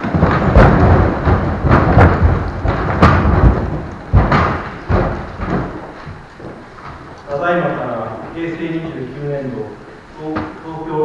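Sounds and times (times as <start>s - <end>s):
folding seats knocking up: 0.0s - 7.1s.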